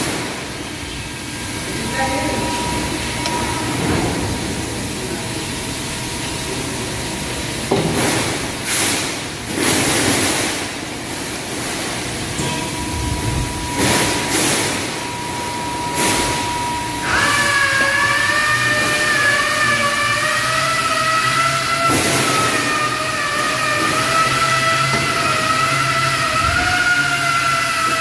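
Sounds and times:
machine hum and hiss: 0:00.0 - 0:28.0
steady high tone: 0:01.7 - 0:04.0, 0:12.3 - 0:20.2.

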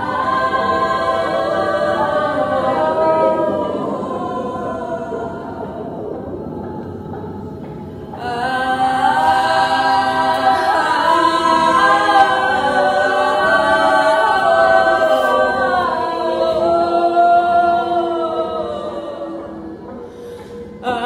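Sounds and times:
women singing a cappella: 0:00.0 - 0:21.0.

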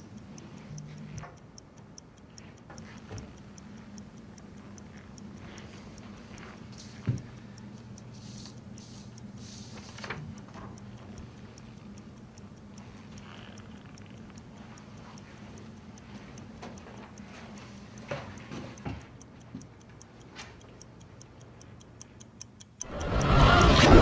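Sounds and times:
fast clock ticking: 0:00.0 - 0:24.0
low hum: 0:22.8 - 0:24.0.

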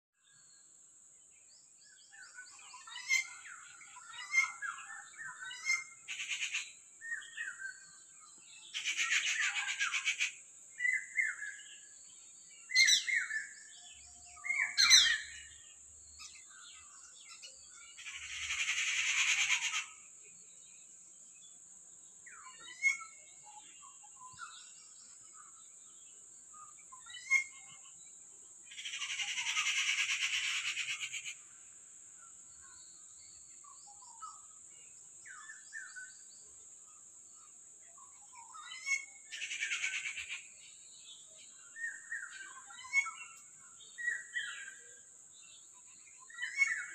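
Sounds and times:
harsh rasping bird calls: 0:05.4 - 0:06.8, 0:08.8 - 0:11.4, 0:18.0 - 0:20.0, 0:28.7 - 0:31.5, 0:38.4 - 0:40.5
birds chirping and whistling: 0:12.6 - 0:17.4, 0:41.4 - 0:44.9, 0:46.0 - 0:46.9.

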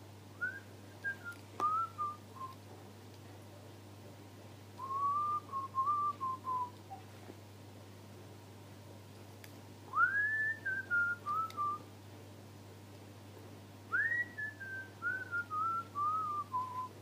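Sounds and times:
person whistling a tune: 0:04.8 - 0:06.7, 0:10.0 - 0:11.8, 0:14.0 - 0:16.9.

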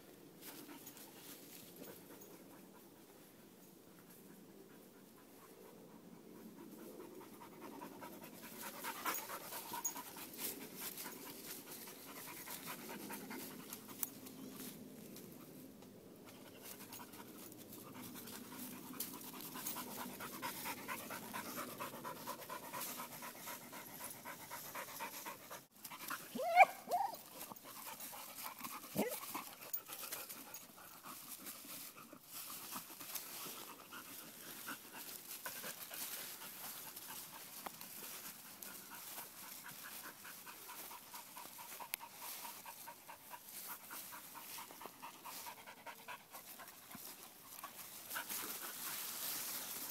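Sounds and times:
dog panting: 0:16.6 - 0:26.3, 0:27.2 - 0:49.8.

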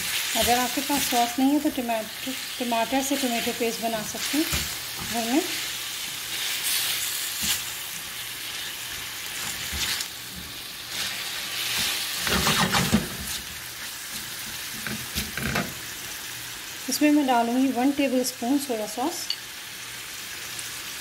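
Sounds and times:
spatula stirring and scraping: 0:00.0 - 0:15.4
chicken sizzling in oil: 0:00.0 - 0:21.0.

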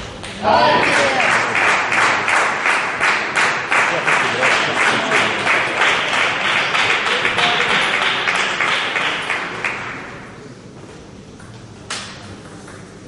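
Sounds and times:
audience applause: 0:00.4 - 0:10.3
table tennis ball ping: 0:11.4 - 0:13.0.

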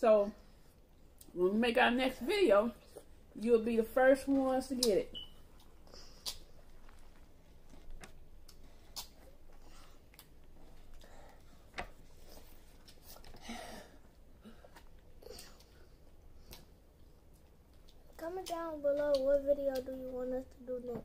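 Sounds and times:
wet clicks of eating watermelon: 0:05.6 - 0:06.6, 0:08.4 - 0:09.3, 0:16.4 - 0:20.2.

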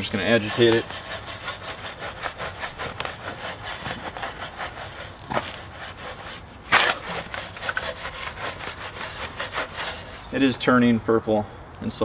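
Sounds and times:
brush scrubbing a car wheel: 0:00.0 - 0:10.6.

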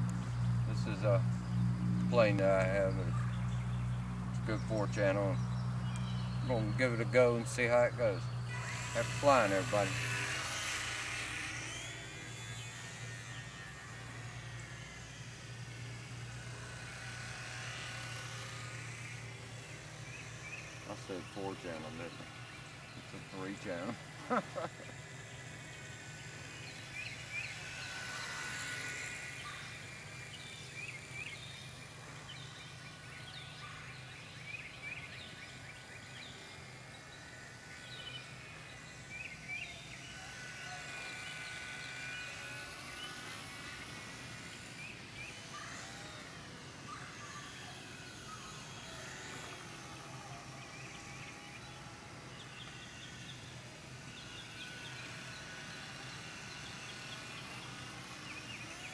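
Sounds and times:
birds chirping: 0:00.0 - 0:58.9
rc plane motor whine: 0:00.0 - 0:58.9
steady low hum: 0:00.0 - 0:58.9.

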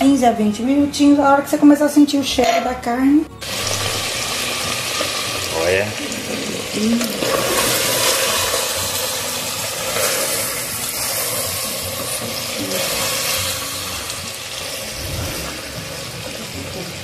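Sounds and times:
meat sizzling and bubbling: 0:03.4 - 0:17.0.

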